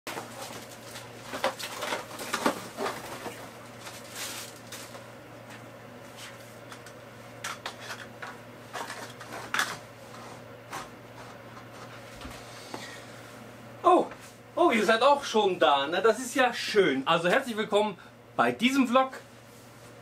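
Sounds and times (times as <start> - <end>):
cardboard and paper rustling: 0.1 - 5.0.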